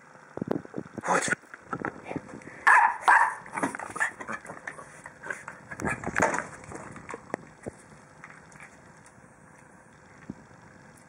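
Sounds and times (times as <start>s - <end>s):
small dog barking: 2.6s - 4.4s.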